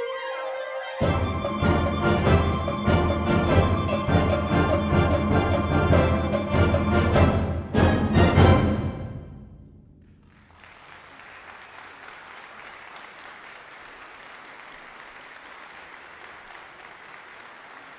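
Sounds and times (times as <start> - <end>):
audience applause: 10.1 - 17.9.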